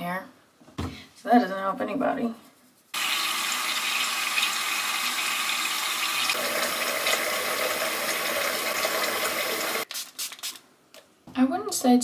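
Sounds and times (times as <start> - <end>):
faucet running into sink: 3.0 - 9.8.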